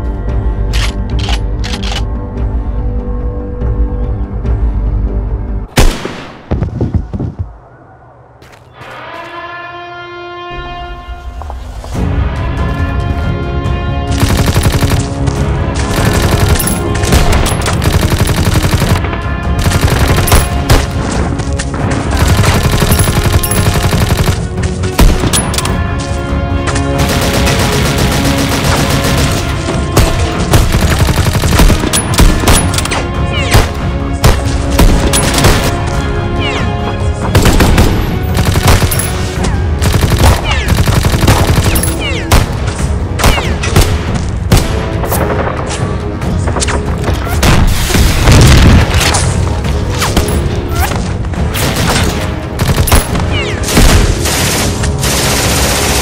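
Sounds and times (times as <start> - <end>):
orchestral film score: 0.0 - 56.0
machine-gun bursts: 14.2 - 15.1, 15.9 - 19.0, 22.1 - 24.4, 30.6 - 32.7, 39.8 - 42.0.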